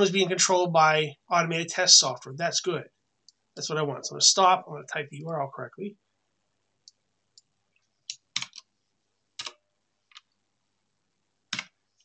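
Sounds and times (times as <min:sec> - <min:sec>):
keyboard keys clicking: 0:08.1 - 0:08.6, 0:09.4 - 0:10.3.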